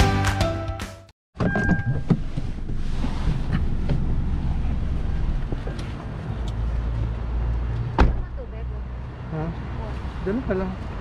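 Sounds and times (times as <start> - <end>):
steady low rumble: 2.1 - 6.8.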